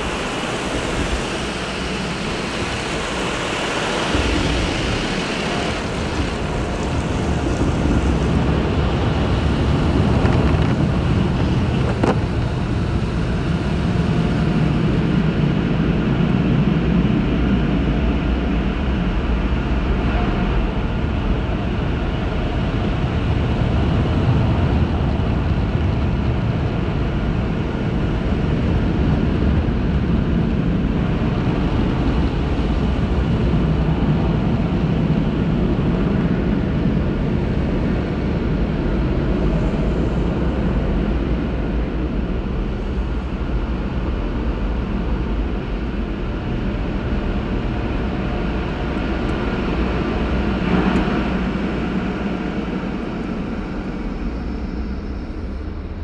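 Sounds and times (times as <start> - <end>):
car wash dryer blowers: 0.0 - 56.0.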